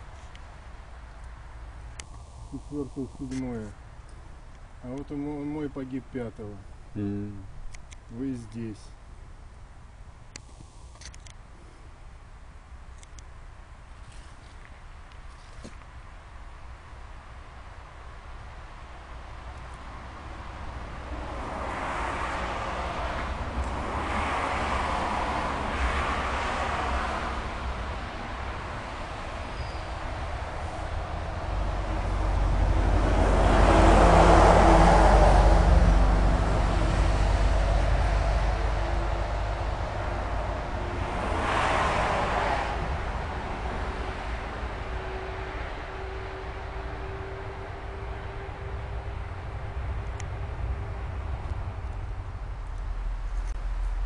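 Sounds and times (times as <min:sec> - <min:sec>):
steady low rumble: 0:00.0 - 0:14.0, 0:15.8 - 0:41.4, 0:45.8 - 0:54.0
vehicle passing by: 0:19.8 - 0:54.0.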